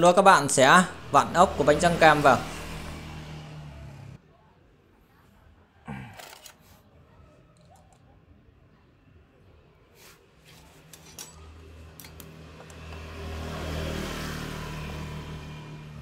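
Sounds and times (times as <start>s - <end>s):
passing vehicle engine hum: 0.0s - 4.2s, 11.4s - 16.0s.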